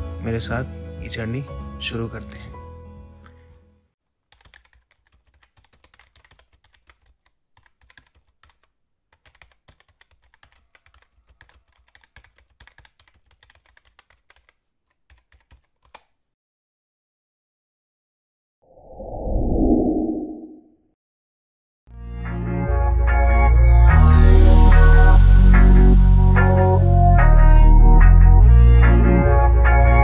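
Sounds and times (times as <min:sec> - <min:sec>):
keyboard key clicks: 0:04.4 - 0:16.1.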